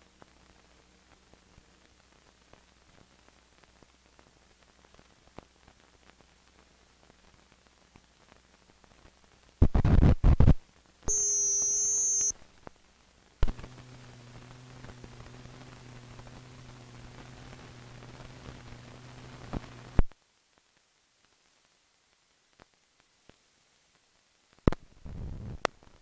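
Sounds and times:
low hum with hiss: 0:00.0 - 0:26.0
loud crackling burst: 0:00.2 - 0:20.1
steady beep tone: 0:11.1 - 0:12.3.

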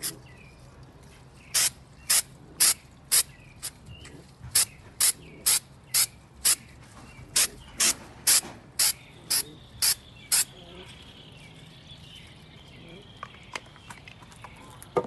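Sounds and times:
spray can hissing in bursts: 0:01.5 - 0:03.8, 0:04.5 - 0:06.7, 0:07.4 - 0:10.5.

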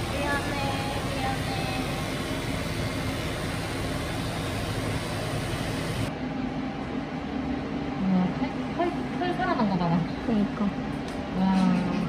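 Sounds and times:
drying cabinet blowing air: 0:00.0 - 0:06.1.

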